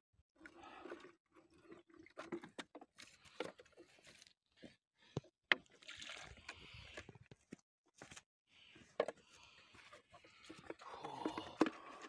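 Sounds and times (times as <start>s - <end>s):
hand sloshing through muddy puddle: 5.7s - 6.7s.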